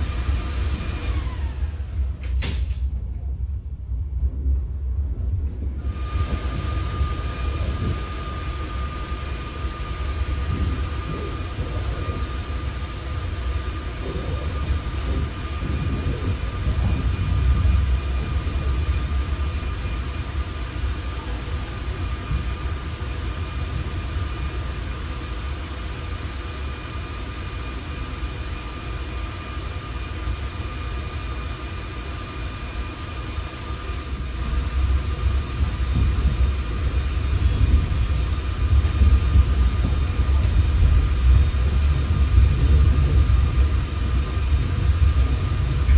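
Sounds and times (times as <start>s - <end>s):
train wheels rumbling on rails: 0.0s - 45.9s.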